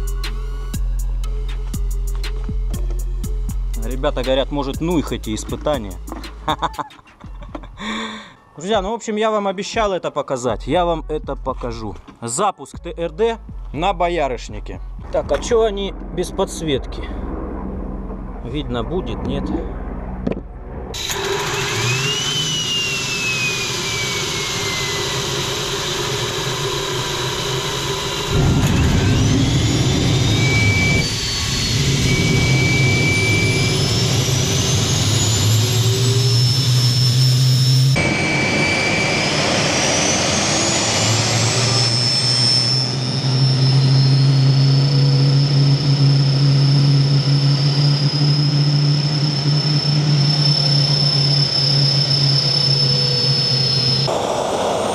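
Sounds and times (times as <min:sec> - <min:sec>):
turbojet engine whine and roar: 0:15.1 - 0:54.9.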